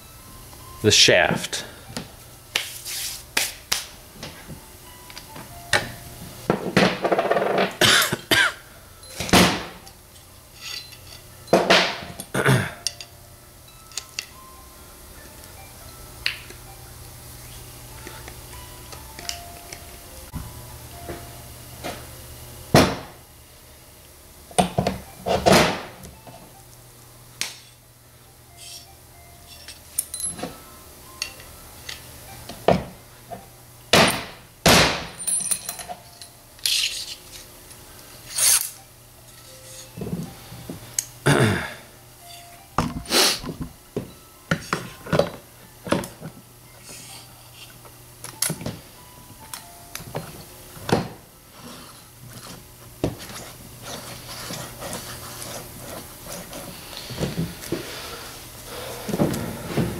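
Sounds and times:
metal parts clunking and clinking: 0:10.6 - 0:13.1, 0:35.1 - 0:37.2.

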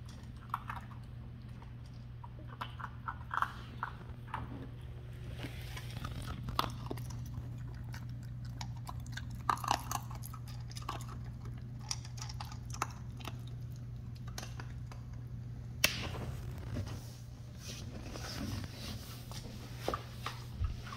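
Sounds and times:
puppy crunching dry kibble: 0:00.0 - 0:16.8.

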